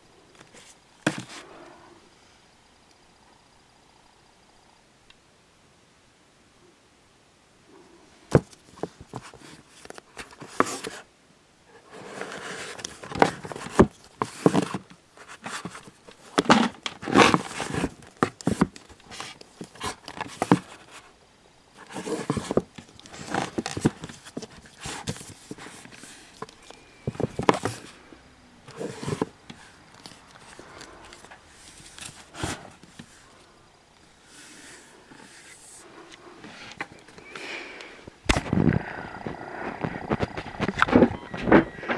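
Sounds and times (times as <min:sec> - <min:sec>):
books rustling and sliding: 0:00.4 - 0:01.8, 0:08.3 - 0:11.1, 0:11.8 - 0:21.1, 0:21.8 - 0:33.5, 0:34.1 - 0:37.5, 0:38.3 - 0:41.9
books knocking together: 0:01.0 - 0:01.4, 0:13.0 - 0:20.8, 0:27.0 - 0:27.9.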